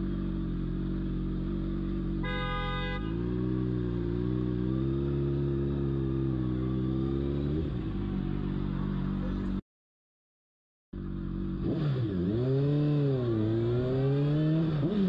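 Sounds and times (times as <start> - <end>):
horn sounding: 2.1 - 3.7
motorcycle engine pulling away: 3.2 - 9.5.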